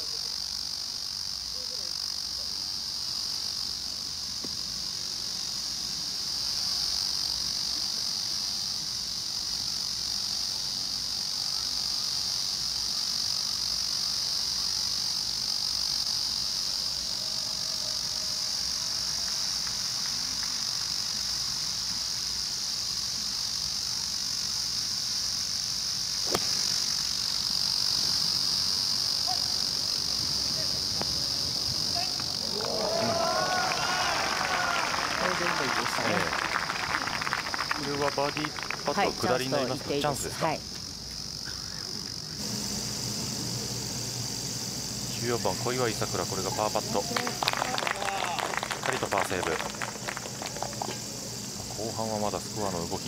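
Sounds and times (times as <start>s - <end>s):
insects droning: 0.0s - 53.0s
golf club striking ball: 26.3s - 26.7s.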